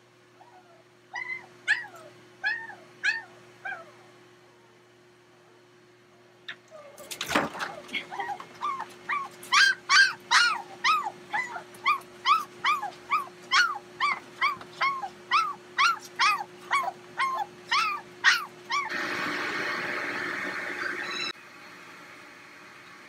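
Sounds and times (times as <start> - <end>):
puppies yelping: 0.4 - 4.1, 6.6 - 18.9, 20.8 - 21.4.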